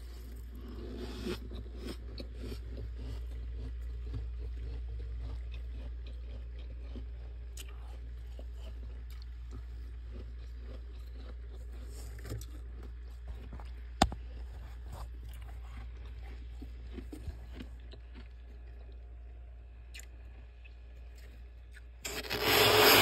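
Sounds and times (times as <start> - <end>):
steady low hum: 0.0 - 23.0
spoon scraping frost: 22.0 - 23.0.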